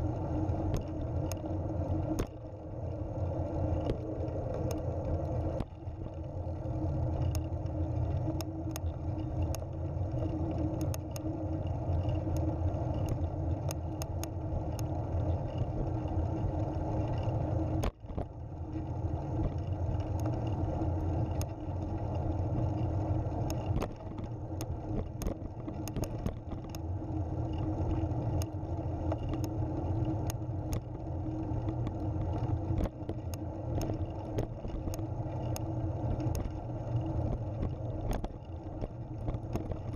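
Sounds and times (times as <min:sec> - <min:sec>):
light clicks: 0:31.6 - 0:36.6.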